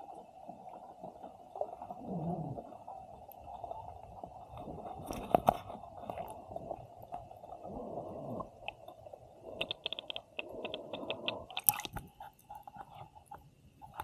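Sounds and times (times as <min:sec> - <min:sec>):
muffled underwater sounds: 0:00.0 - 0:14.0
small clicks: 0:09.6 - 0:12.1
irregular crackling: 0:09.6 - 0:14.0.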